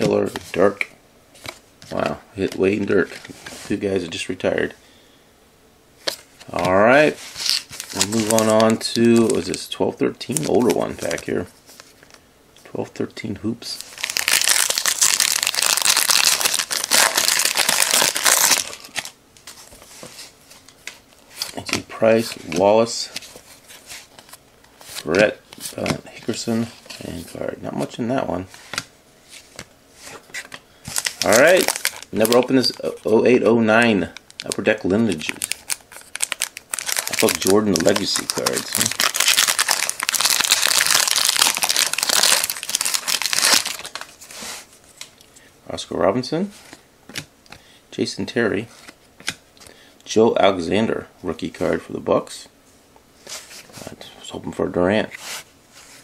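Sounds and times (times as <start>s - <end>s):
foil wrapper tearing and crinkling: 7.4s - 9.6s, 13.9s - 19.1s, 30.9s - 32.8s, 34.3s - 44.1s.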